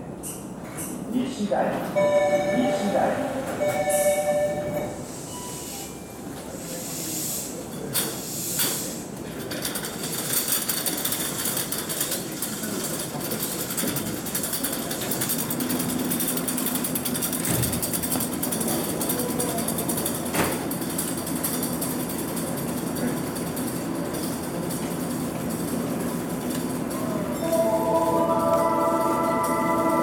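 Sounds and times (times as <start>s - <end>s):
train air hisses: 5.0s - 9.2s.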